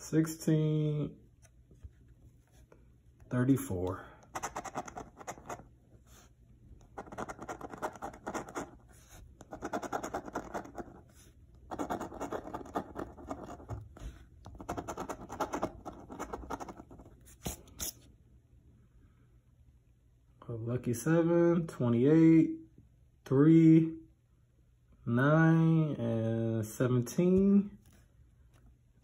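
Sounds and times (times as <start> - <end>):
coin scratching lottery ticket: 4.3 - 5.6, 6.9 - 8.8, 9.4 - 11.0, 11.7 - 13.7, 14.5 - 17.1.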